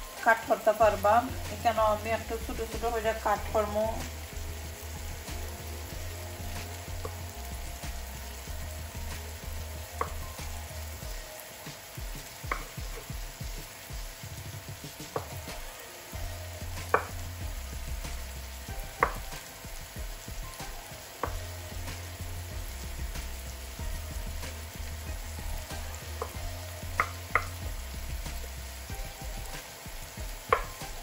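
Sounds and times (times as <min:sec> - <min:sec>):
onions sizzling in pan: 0:00.0 - 0:31.0
knife tapping wooden board: 0:12.4 - 0:13.2, 0:15.1 - 0:15.4, 0:16.9 - 0:17.2, 0:19.0 - 0:19.3, 0:27.0 - 0:27.6, 0:30.5 - 0:31.0.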